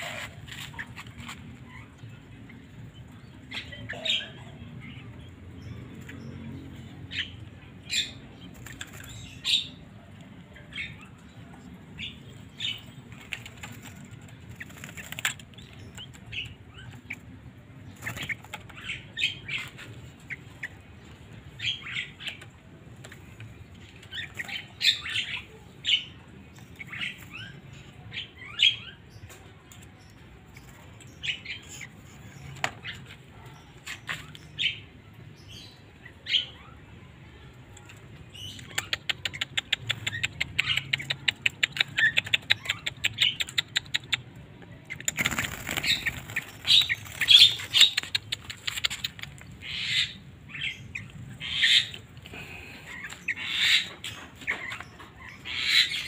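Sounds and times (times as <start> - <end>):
young birds calling: 38.4 - 56.0
wings fluttering: 44.9 - 49.4.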